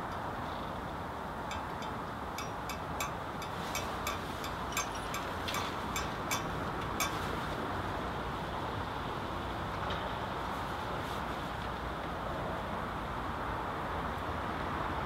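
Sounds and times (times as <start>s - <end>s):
hand tools clicking on metal: 1.5s - 7.2s.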